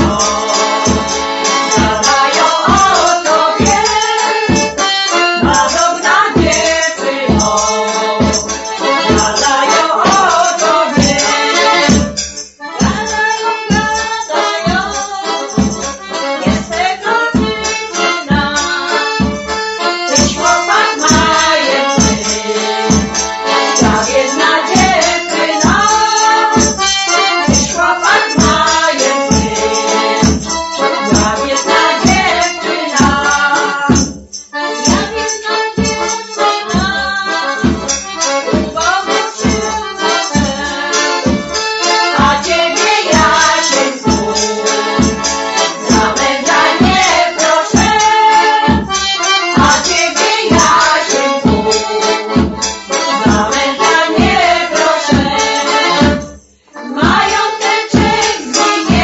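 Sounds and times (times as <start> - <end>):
women singing together: 0.0 - 12.0, 12.7 - 34.2, 34.8 - 56.2, 56.8 - 59.0
accordion: 0.0 - 59.0.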